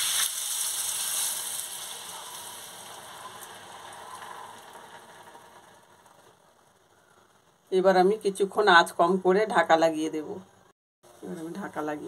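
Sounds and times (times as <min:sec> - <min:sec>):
liquid poured into hot oil: 0:00.0 - 0:05.9
food sizzling loudly: 0:00.0 - 0:06.2.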